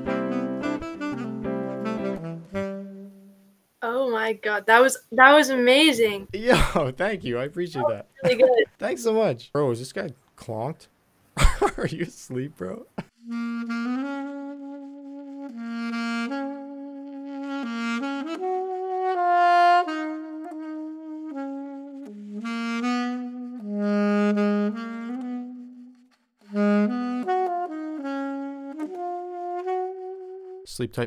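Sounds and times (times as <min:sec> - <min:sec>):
saxophone playing slow melody: 0:00.0 - 0:03.6, 0:13.2 - 0:30.7.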